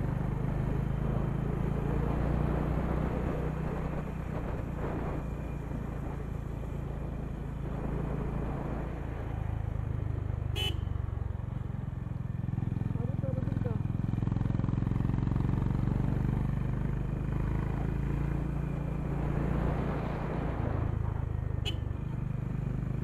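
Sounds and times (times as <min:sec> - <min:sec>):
motorcycle engine running: 0:09.8 - 0:19.4.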